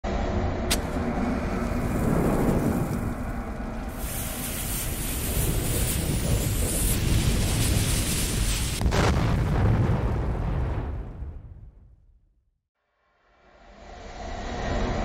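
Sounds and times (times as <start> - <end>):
bomb fuse hissing: 0.7 - 8.9.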